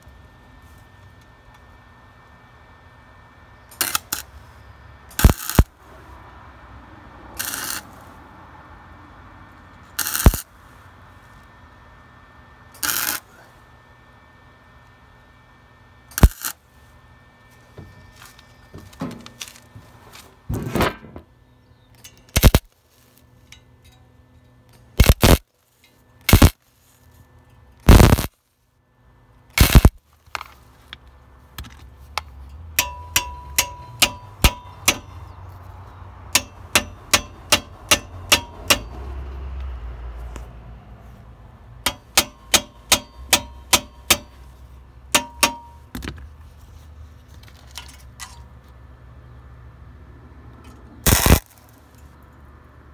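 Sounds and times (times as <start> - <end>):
sharp welding zaps: 3.7 - 4.5, 5.1 - 5.9, 7.3 - 8.1, 9.9 - 10.6, 12.8 - 13.4, 16.1 - 16.6, 22.0 - 23.4, 24.8 - 27.1, 27.8 - 28.4, 29.6 - 30.4, 51.0 - 52.2
welding arc crackling: 3.8 - 4.4, 5.1 - 5.8, 7.3 - 8.1, 9.9 - 10.6, 12.8 - 13.3, 16.1 - 16.6, 22.3 - 23.1, 25.0 - 25.5, 26.3 - 26.6, 27.8 - 28.4, 29.6 - 30.1, 51.0 - 52.0.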